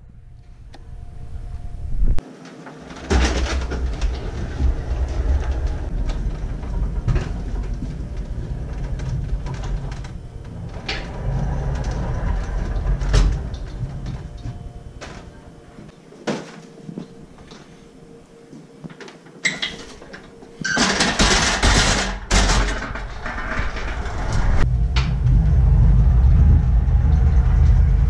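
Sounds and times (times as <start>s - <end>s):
pallet jack rumbling and rattling: 2.5s - 15.8s, 19.7s - 28.0s.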